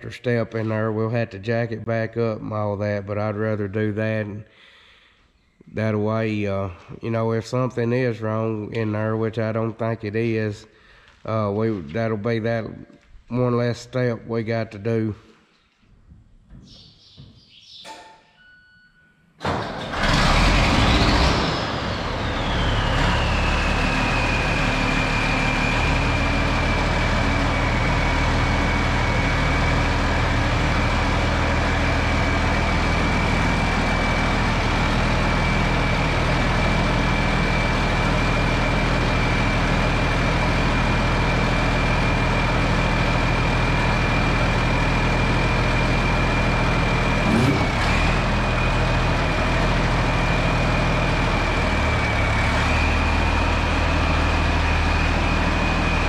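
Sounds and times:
diesel tractor idling: 19.4s - 56.0s
high whine: 47.2s - 48.2s.

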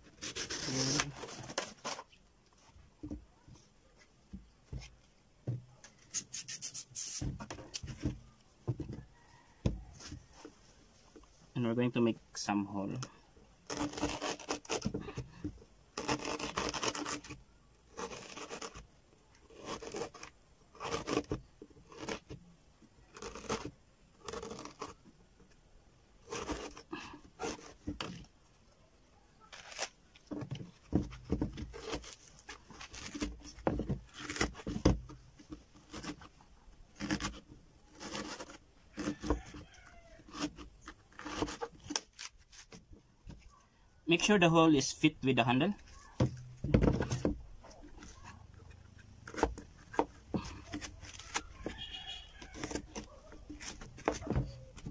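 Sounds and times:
knife cutting fibrous stalk: 0.1s - 2.1s, 13.7s - 15.0s, 16.0s - 18.8s, 19.4s - 22.4s, 23.0s - 25.0s, 26.2s - 28.2s, 29.4s - 30.0s, 31.7s - 34.8s, 37.0s - 42.7s.

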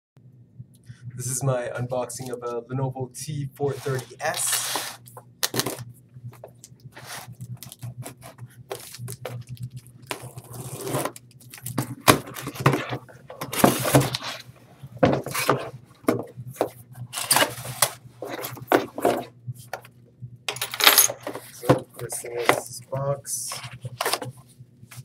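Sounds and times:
faint low hum: 0.2s - 25.0s
cardboard rustling and tearing: 3.8s - 5.8s, 7.0s - 14.4s.

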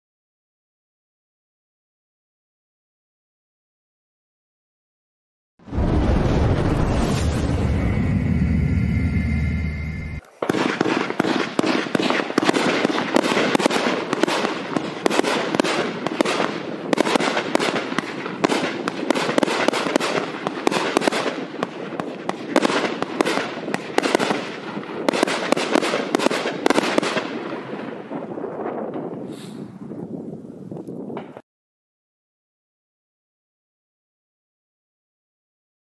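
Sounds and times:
fireworks volley: 5.7s - 30.1s.

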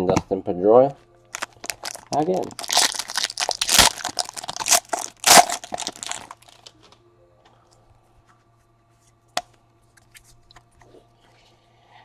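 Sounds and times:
foil wrapper crinkling: 1.3s - 6.7s.

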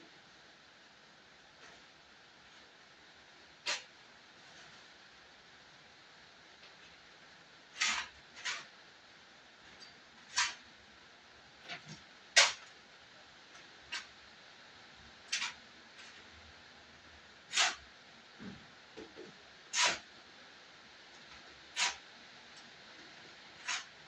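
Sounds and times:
shovel scraping soil: 3.7s - 3.9s, 7.8s - 8.7s, 10.3s - 10.6s, 11.7s - 12.6s, 15.3s - 16.2s, 17.5s - 17.8s, 19.7s - 20.1s, 21.8s - 22.0s, 23.6s - 24.0s.

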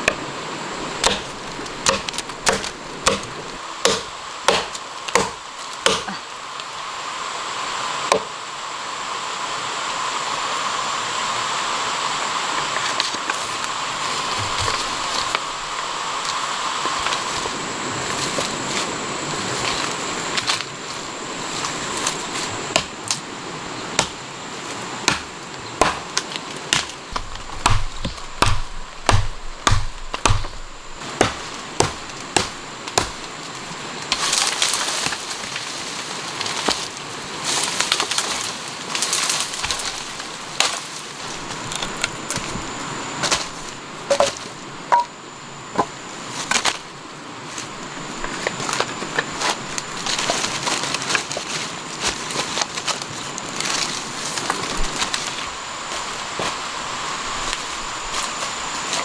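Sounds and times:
brush and leaves rustling: 0.0s - 59.0s
sticks cracking and snapping: 1.0s - 6.7s, 25.0s - 42.6s, 46.4s - 46.9s, 47.6s - 55.5s.

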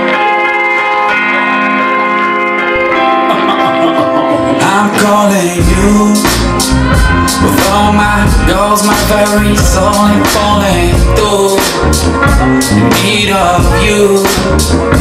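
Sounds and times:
dance music chords: 0.7s - 15.0s
person singing: 3.0s - 15.0s
heavy bass beat: 3.7s - 15.0s.

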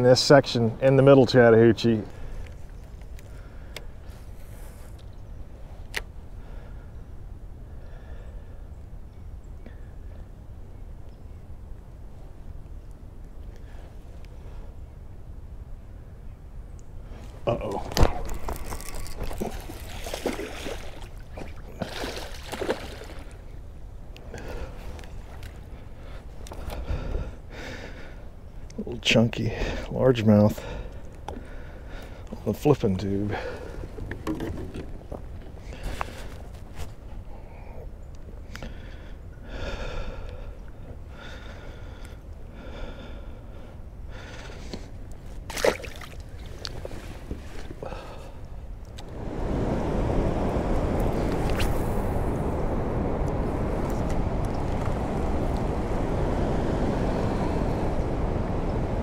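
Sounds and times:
person breathing: 38.6s - 44.7s, 47.8s - 48.5s.

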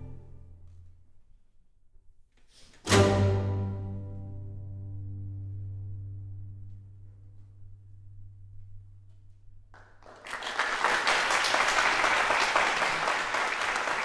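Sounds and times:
audience applause: 9.8s - 14.0s.

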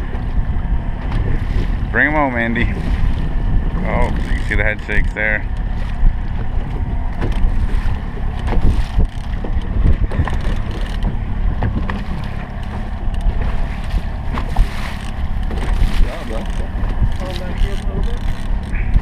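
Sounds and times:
outboard motor running: 0.0s - 19.0s
wind buffeting microphone: 0.0s - 19.0s.

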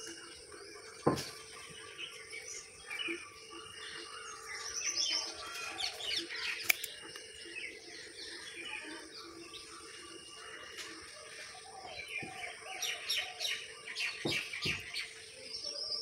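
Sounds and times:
small birds chirping: 0.0s - 16.0s
pruning shears snipping branch: 6.6s - 7.2s.

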